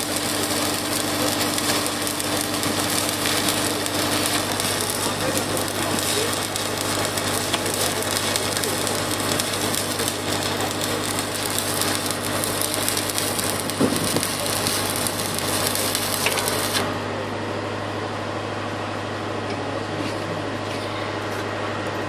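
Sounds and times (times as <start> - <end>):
welding arc crackling hiss: 0.0 - 17.0
engine running: 0.0 - 22.0.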